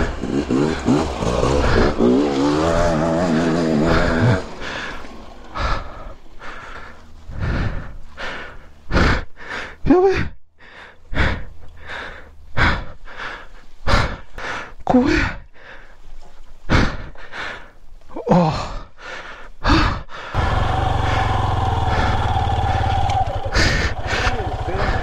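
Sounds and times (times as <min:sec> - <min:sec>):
person grunting: 0:00.0 - 0:05.0, 0:09.8 - 0:10.4, 0:18.2 - 0:18.9
motorcycle engine running: 0:00.0 - 0:07.2, 0:20.4 - 0:25.0
person breathing hard: 0:00.0 - 0:25.0.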